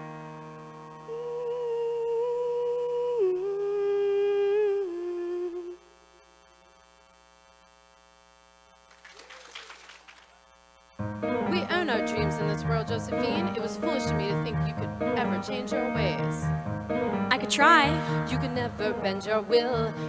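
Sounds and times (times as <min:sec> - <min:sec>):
piano chord: 0:00.0 - 0:01.1, 0:11.0 - 0:20.0
woman singing: 0:01.0 - 0:05.9, 0:11.4 - 0:16.5, 0:17.3 - 0:20.0.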